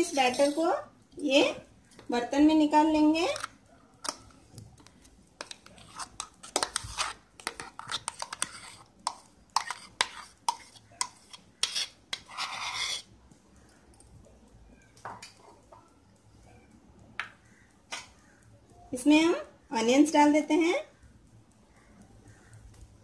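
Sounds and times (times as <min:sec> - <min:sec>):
spoon scraping metal jar: 0:00.0 - 0:00.8, 0:05.4 - 0:08.9, 0:09.6 - 0:13.1.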